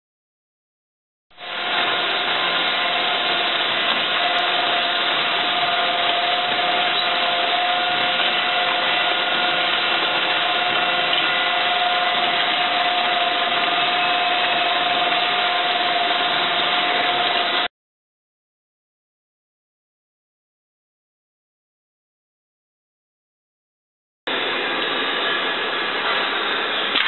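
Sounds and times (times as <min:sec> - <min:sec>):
paddle mixer churning birdseed: 0:01.4 - 0:17.7.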